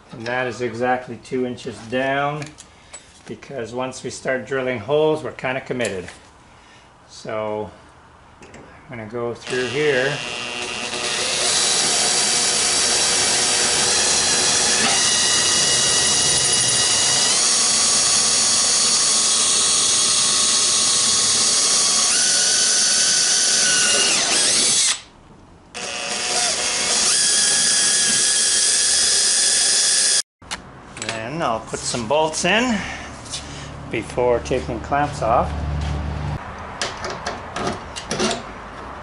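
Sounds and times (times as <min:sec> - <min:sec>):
cordless drill boring: 0:09.4 - 0:25.1, 0:25.8 - 0:30.2.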